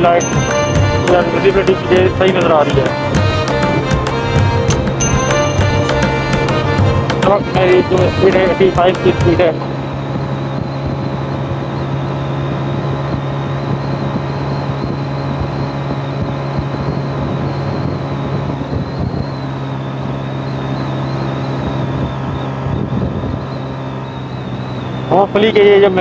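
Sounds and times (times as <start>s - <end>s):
motorcycle engine cruising: 0.0s - 26.0s
wind rushing over microphone: 9.4s - 25.1s.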